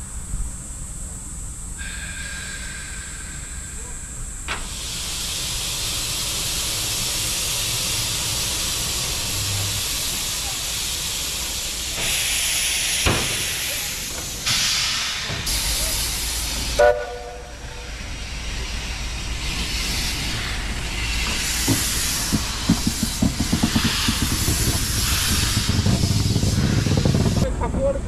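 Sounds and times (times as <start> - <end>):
steam locomotive hissing steam: 0.0 - 27.6
locomotive exhaust chuffs: 1.8 - 27.6
steam whistle blast: 16.8 - 17.7.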